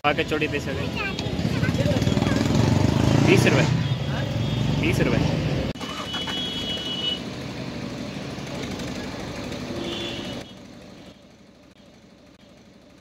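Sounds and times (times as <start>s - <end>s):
engine running roughly: 5.7s - 13.0s.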